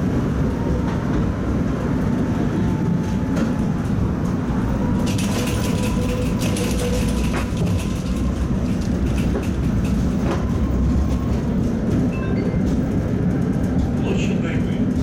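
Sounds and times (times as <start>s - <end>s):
tram wheels rumbling: 0.0s - 15.0s
clicks and rattles: 5.0s - 10.5s.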